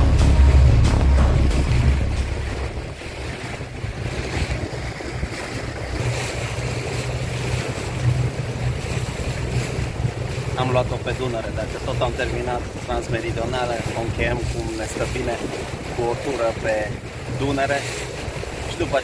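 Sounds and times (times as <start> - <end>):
background music: 0.0 - 2.9
low hum: 0.0 - 4.7
water rushing past hull: 0.0 - 19.0
wind buffeting microphone: 0.0 - 19.0.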